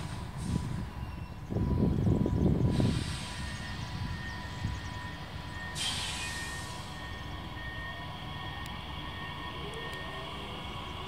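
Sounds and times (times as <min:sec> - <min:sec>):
train rumble: 0:00.0 - 0:11.0
brief hiss: 0:02.7 - 0:03.4, 0:05.8 - 0:06.9.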